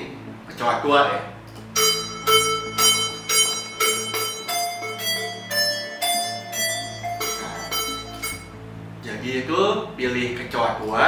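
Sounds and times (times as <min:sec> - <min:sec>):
melody of short struck notes: 0:01.5 - 0:08.8.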